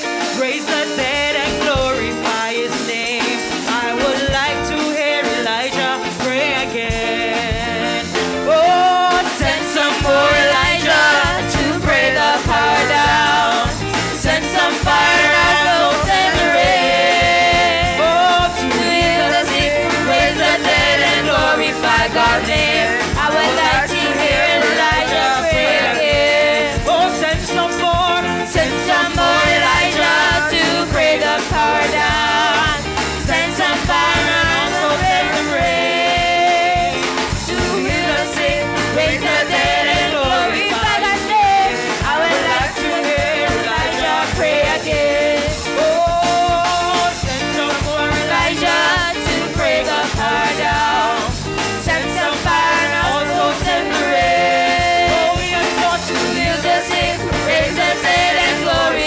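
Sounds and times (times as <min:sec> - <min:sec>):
drum kit: 0:00.0 - 0:59.0
group singing gospel praise: 0:00.0 - 0:59.0.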